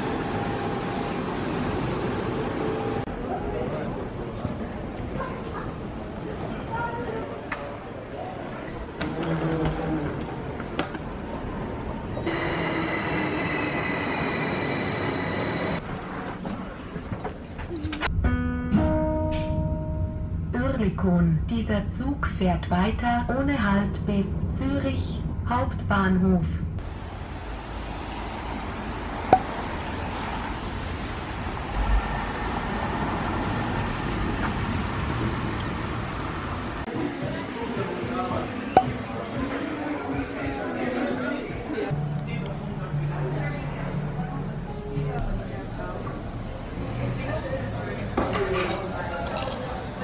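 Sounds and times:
city street traffic: 0:00.0 - 0:18.2, 0:19.1 - 0:50.0
passenger train rumbling: 0:00.0 - 0:18.2, 0:19.1 - 0:37.8
high squealing whine: 0:12.3 - 0:15.8.

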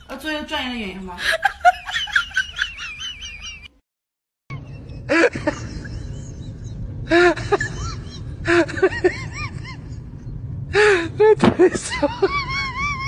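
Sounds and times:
low background rumble: 0:04.5 - 0:13.0.

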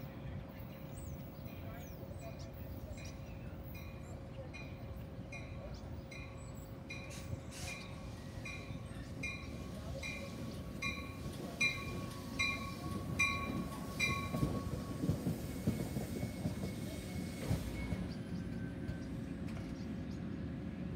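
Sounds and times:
train wheels rumbling on rails: 0:00.4 - 0:20.9
train bell dinging: 0:02.9 - 0:19.2.

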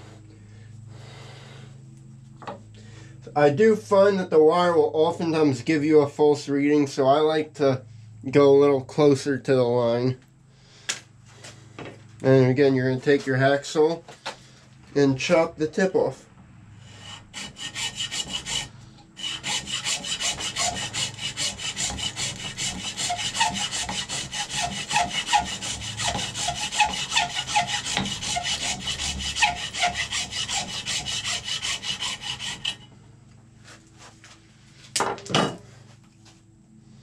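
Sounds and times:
hacksaw cutting horn: 0:16.9 - 0:32.9.

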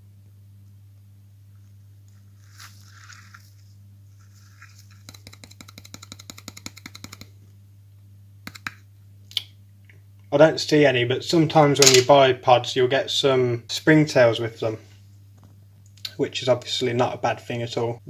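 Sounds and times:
soft rustle: 0:01.5 - 0:05.2
rapid light clicks: 0:05.1 - 0:07.4.

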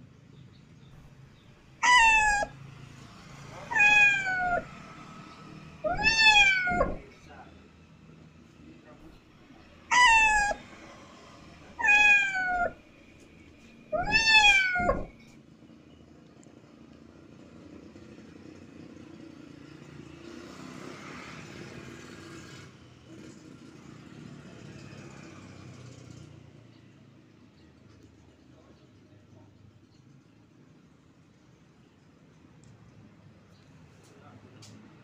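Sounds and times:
kitten meowing: 0:01.8 - 0:02.6, 0:03.6 - 0:04.7, 0:05.8 - 0:07.1, 0:09.9 - 0:10.8, 0:11.7 - 0:12.8, 0:13.9 - 0:15.2.

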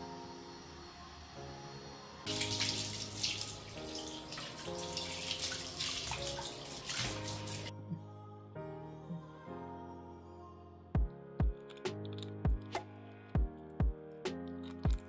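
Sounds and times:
soft music: 0:00.0 - 0:15.0
tap water splashing into sink: 0:02.3 - 0:07.7.

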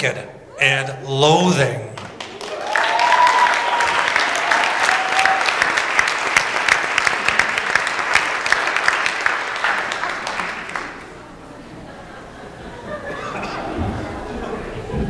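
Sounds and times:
audience applauding: 0:02.0 - 0:11.4.

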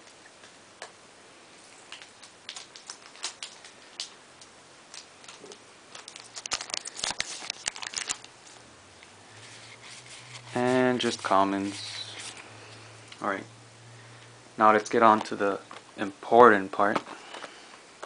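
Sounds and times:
foil wrapper crinkling: 0:01.8 - 0:04.2, 0:04.9 - 0:08.6.

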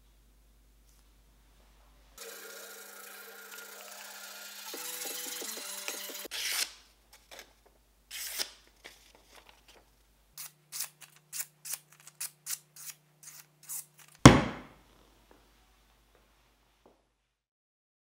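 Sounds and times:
knife cutting paper: 0:05.9 - 0:09.8, 0:10.4 - 0:14.3.

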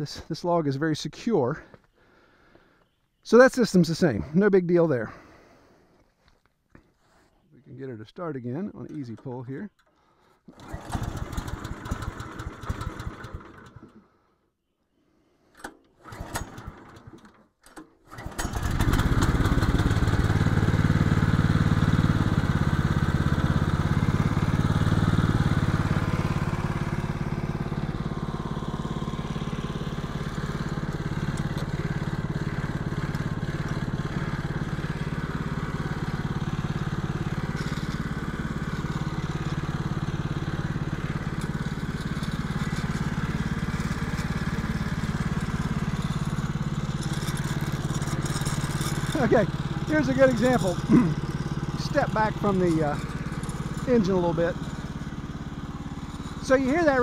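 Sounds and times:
small gasoline engine running: 0:09.9 - 0:14.3, 0:15.9 - 0:57.0.

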